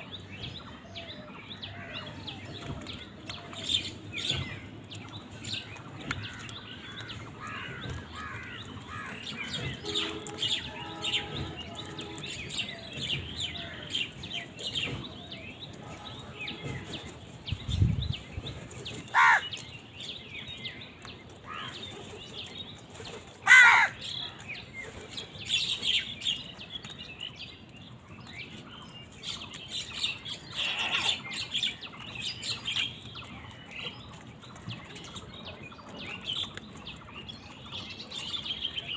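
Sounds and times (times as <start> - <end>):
birds chirping: 0.0 - 38.9
crow cawing: 19.1 - 19.4, 23.4 - 24.0.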